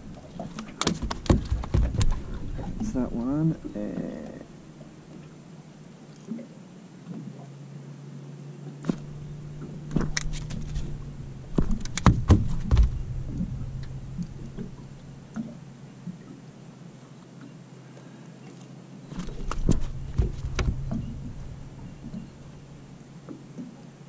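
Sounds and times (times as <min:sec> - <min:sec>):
low steady hum: 0:00.0 - 0:24.0
fish and pliers knocking on mat: 0:00.8 - 0:02.2, 0:11.5 - 0:13.0, 0:19.2 - 0:21.0.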